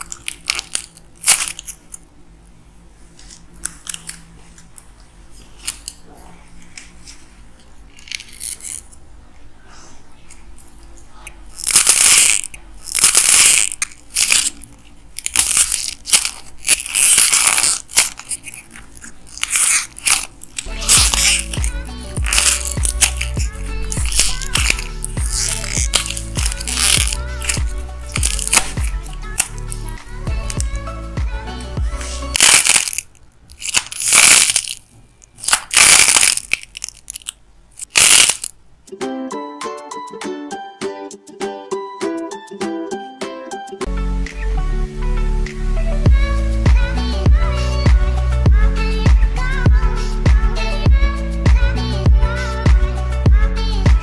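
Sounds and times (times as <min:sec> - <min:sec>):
clay crunching and crackling: 0:11.5 - 0:30.7, 0:32.0 - 0:38.6.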